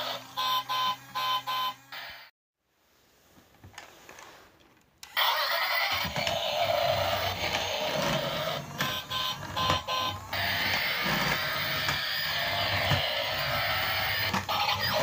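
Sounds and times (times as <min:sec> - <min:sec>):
toy train motor whirring: 0:05.0 - 0:15.0
plastic wheels rolling on tray: 0:06.0 - 0:15.0.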